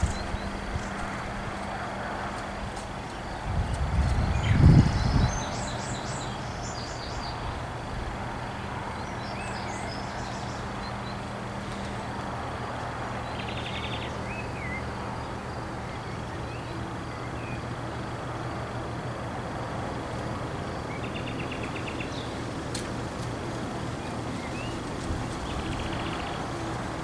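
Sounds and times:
small birds chirping: 0.0s - 1.8s, 20.7s - 27.0s.

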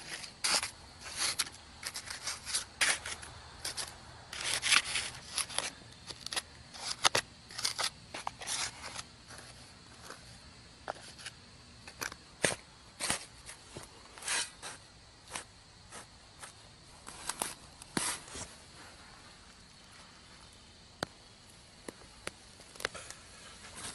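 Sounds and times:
trowel scraping dry soil: 0.0s - 19.0s.

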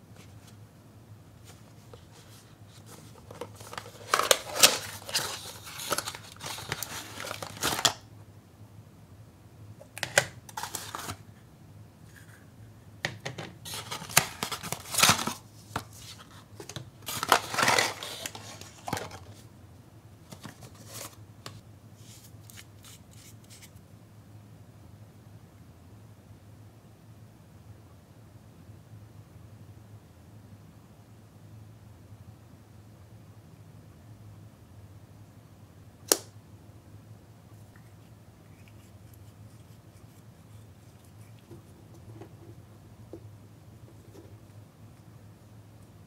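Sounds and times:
rustling and crinkling packaging: 1.4s - 8.1s, 10.0s - 11.3s, 13.6s - 19.5s, 20.3s - 21.2s.

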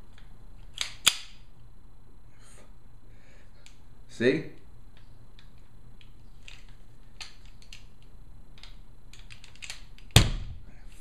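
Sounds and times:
handgun metallic clicks and rattles: 0.6s - 1.4s, 5.4s - 10.2s.

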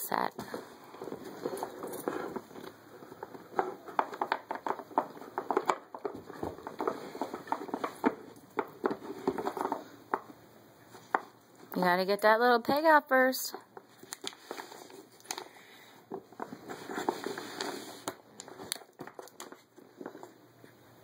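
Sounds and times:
wooden pegs clicking and knocking: 1.0s - 10.3s
soft rustling: 13.6s - 18.7s.

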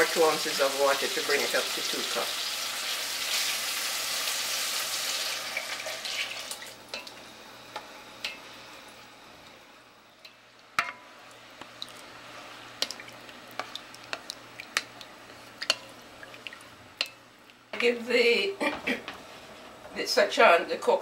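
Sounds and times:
food sizzling in a pot: 0.0s - 17.5s
spoon knocking against pot: 10.8s - 11.0s.

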